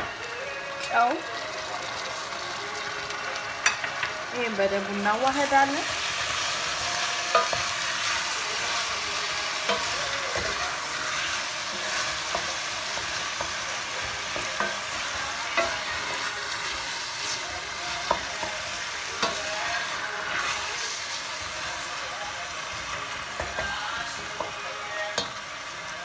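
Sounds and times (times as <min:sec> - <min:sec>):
meat filling sizzling in a pot: 0:00.0 - 0:26.0.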